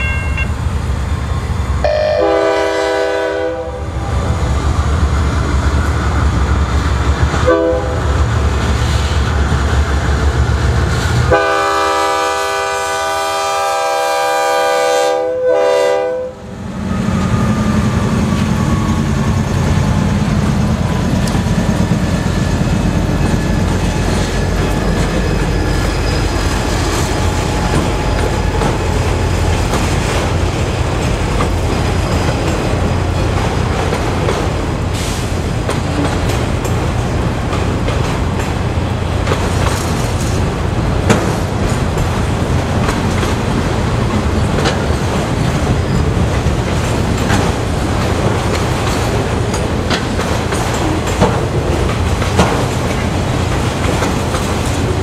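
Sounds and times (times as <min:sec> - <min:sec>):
train wheels on rails: 0:00.0 - 0:55.0
locomotive horn blasts: 0:01.8 - 0:03.9, 0:07.4 - 0:08.1, 0:11.3 - 0:16.5.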